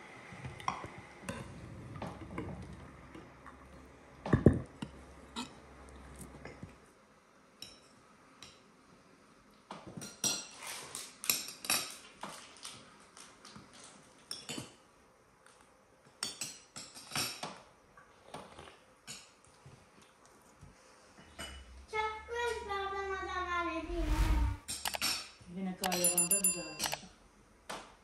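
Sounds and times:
forks clinking on plates: 25.9s - 27.1s.

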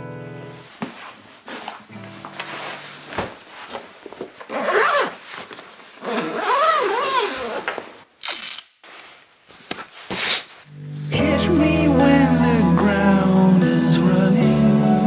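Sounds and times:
fabric rustling: 0.6s - 8.1s, 8.8s - 10.7s
zipper being pulled: 4.4s - 8.7s.

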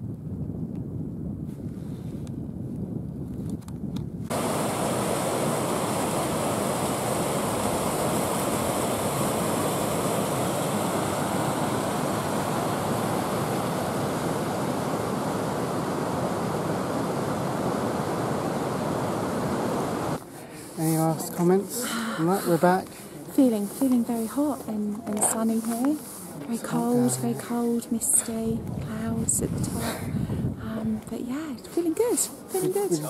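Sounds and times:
wind buffeting the microphone: 0.0s - 20.2s, 27.4s - 32.8s
stream rushing over boulders: 4.3s - 20.2s.

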